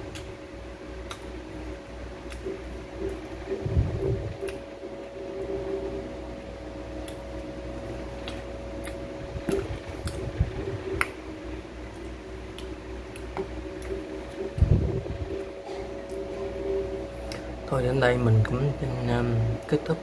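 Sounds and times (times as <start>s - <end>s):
steady electrical hum: 0.0s - 20.0s
wet chewing and mouth clicks: 1.0s - 1.4s, 2.2s - 3.4s, 7.0s - 7.5s, 8.2s - 10.4s, 11.9s - 14.4s.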